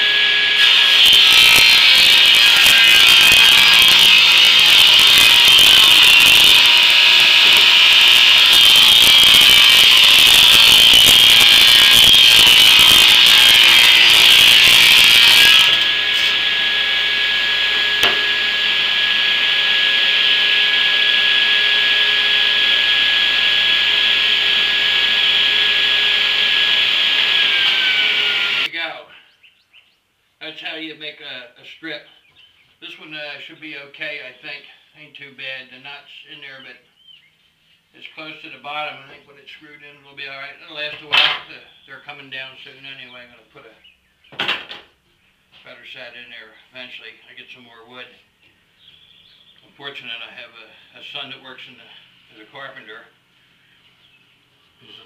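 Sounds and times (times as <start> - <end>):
saw blade whining: 0.0 - 28.7
table saw cutting wood: 0.0 - 28.7.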